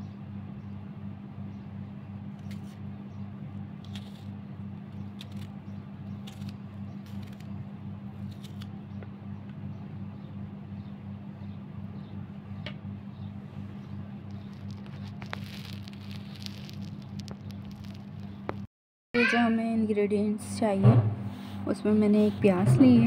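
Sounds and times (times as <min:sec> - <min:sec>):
steady low hum: 0:00.0 - 0:18.7, 0:19.4 - 0:23.0
knife cutting chilies: 0:02.4 - 0:02.8, 0:03.8 - 0:09.0.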